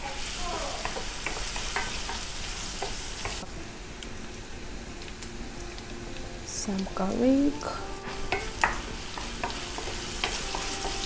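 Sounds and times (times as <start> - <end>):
food sizzling in a pan: 0.0 - 11.0
utensil clicking against pan: 0.8 - 3.4, 8.1 - 11.0.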